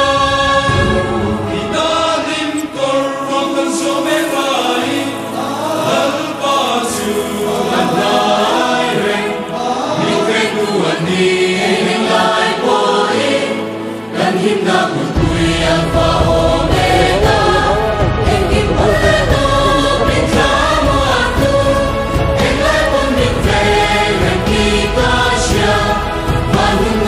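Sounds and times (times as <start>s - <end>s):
several voices singing together: 0.0s - 27.0s
sustained bass notes: 15.2s - 27.0s.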